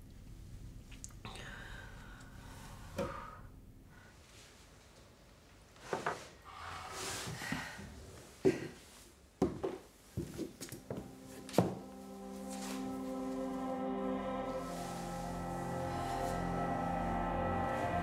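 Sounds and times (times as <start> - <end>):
film score music: 10.7 - 18.0.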